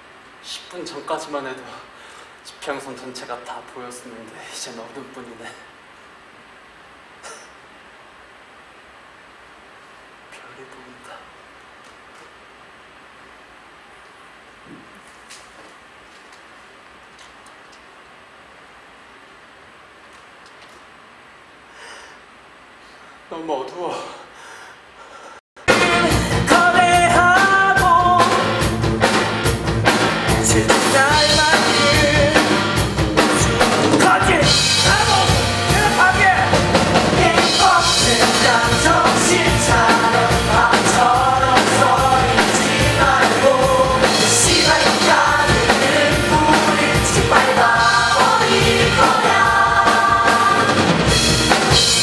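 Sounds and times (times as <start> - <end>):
cast singing rock song: 25.6 - 52.0
drums steady beat: 25.6 - 52.0
live band playing: 25.6 - 52.0.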